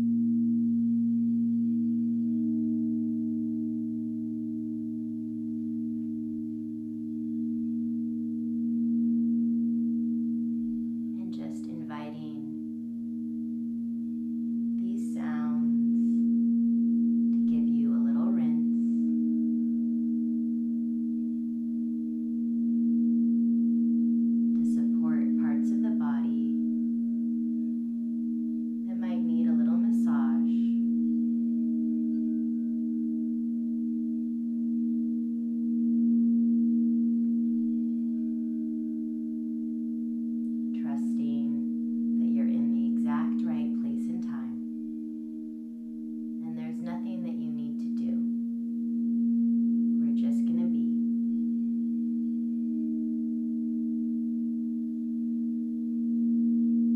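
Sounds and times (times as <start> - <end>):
crystal singing bowls ringing: 0.0 - 56.9
person's voice: 11.2 - 12.5, 14.8 - 15.9, 17.5 - 18.8, 24.6 - 26.6, 28.9 - 30.8, 42.2 - 44.6, 46.4 - 48.3, 50.0 - 51.0.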